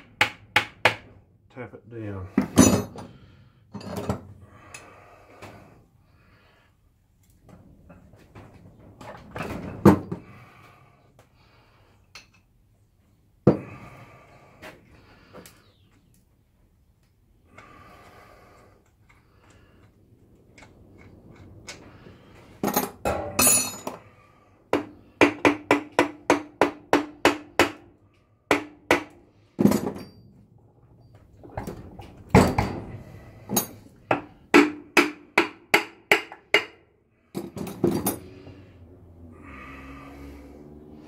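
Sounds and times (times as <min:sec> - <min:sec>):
hammer striking metal housing: 0:23.0 - 0:24.0.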